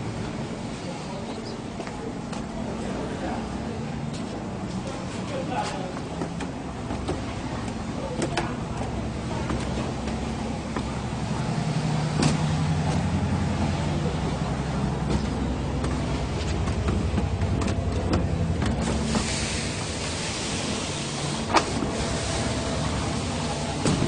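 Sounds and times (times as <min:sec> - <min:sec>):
pump engine running: 0:08.8 - 0:24.0
hiss: 0:18.8 - 0:24.0.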